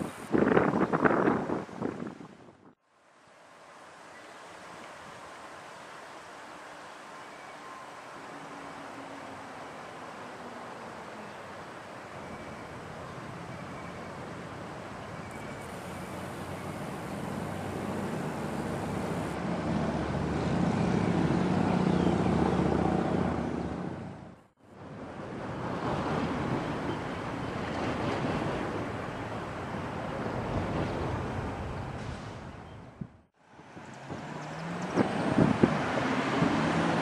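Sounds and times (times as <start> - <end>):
wind on microphone: 0.0 - 2.8, 29.9 - 37.0.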